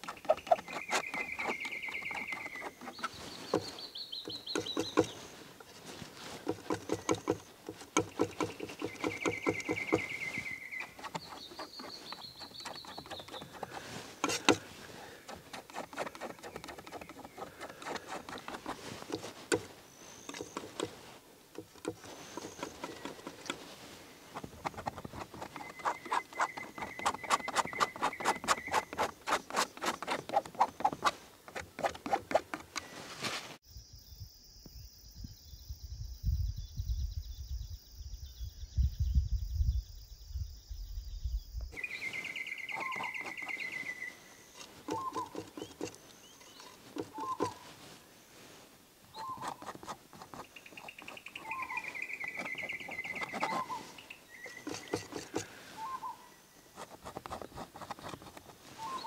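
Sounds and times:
short bird calls: 0:41.8 - 0:47.8, 0:49.1 - 0:49.7, 0:50.4 - 0:56.5, 0:58.7 - 0:59.0.

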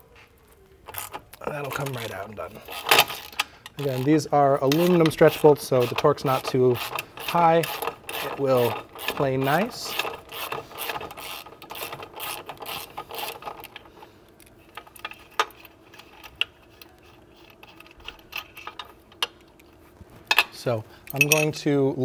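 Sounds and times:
hand ratchet clicking: 0:02.6 - 0:19.4.

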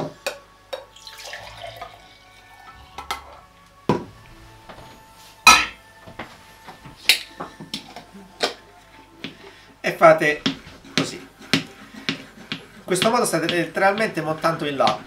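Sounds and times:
milk pouring into glass: 0:00.8 - 0:02.6.

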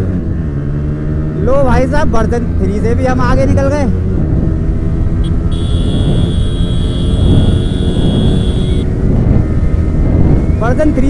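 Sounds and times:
motorcycle engines running hard: 0:00.0 - 0:11.0.

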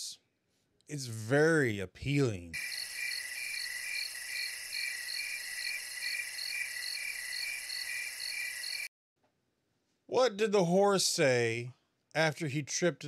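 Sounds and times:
cricket chirping: 0:02.6 - 0:08.9.

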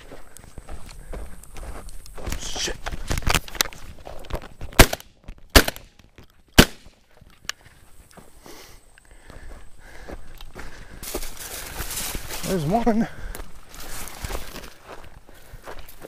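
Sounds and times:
footsteps rustling through dry weeds: 0:00.0 - 0:05.5, 0:06.1 - 0:16.0
shotgun shots: 0:04.8 - 0:06.0, 0:06.6 - 0:07.0.

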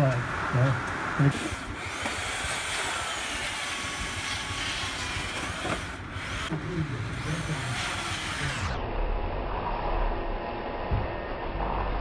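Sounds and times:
engine running with hiss: 0:00.0 - 0:08.8.

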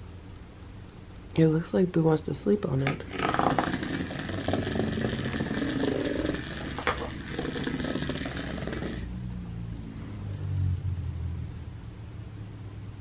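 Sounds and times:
small electric motor buzzing: 0:03.1 - 0:09.1.

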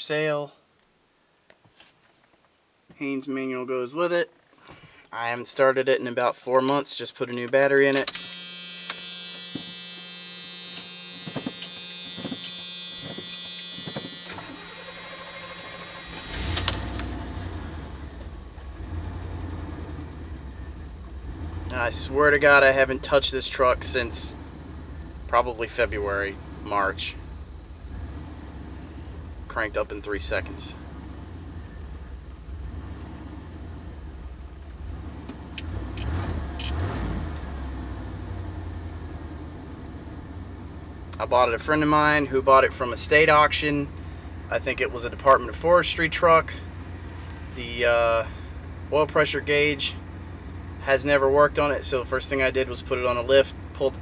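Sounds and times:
warning buzzer: 0:08.1 - 0:17.1
engine idling: 0:08.1 - 0:28.0, 0:38.9 - 0:54.0
starter cranking: 0:10.7 - 0:17.2.

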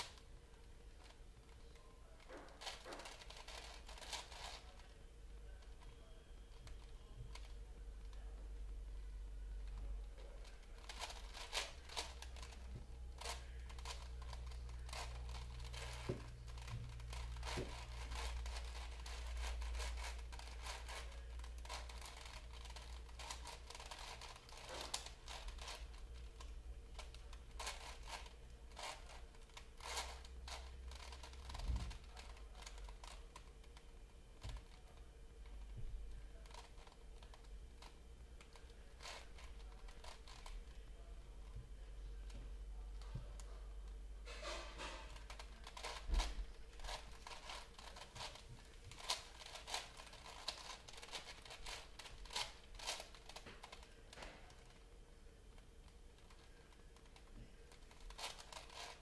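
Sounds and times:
puzzle cube clicking and scraping: 0:00.9 - 0:04.9, 0:05.6 - 0:08.2, 0:09.6 - 0:40.8, 0:44.3 - 0:54.8, 0:55.9 - 0:59.0.

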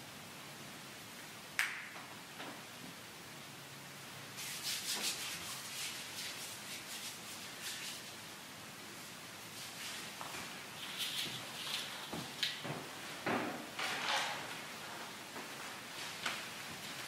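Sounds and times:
cloth rubbing and rustling: 0:09.0 - 0:13.2.

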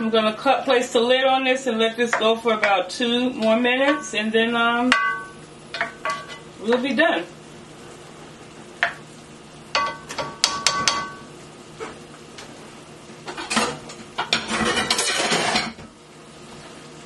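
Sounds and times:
cookware rattling and scraping: 0:13.3 - 0:15.8.

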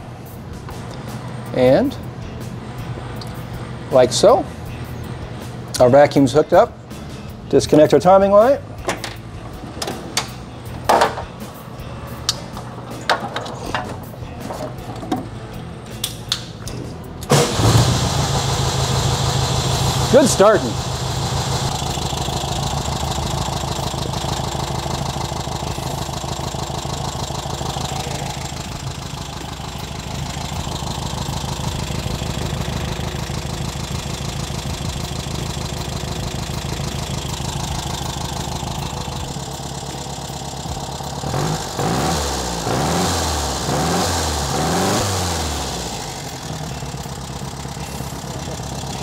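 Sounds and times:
car engine idling: 0:00.0 - 0:16.5, 0:17.1 - 0:49.0
engine revving: 0:17.2 - 0:49.0.

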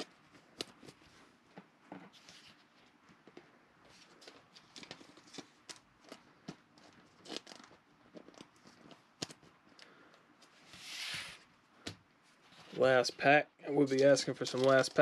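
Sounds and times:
cards and plastic rustling: 0:02.1 - 0:11.4, 0:13.8 - 0:15.0.

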